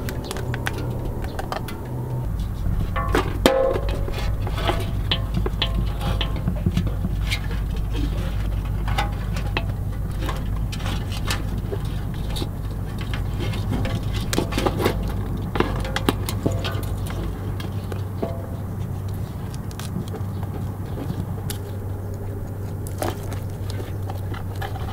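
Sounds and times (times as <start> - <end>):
crab legs clicking on metal: 0.0 - 24.9
low rumble: 0.0 - 24.9.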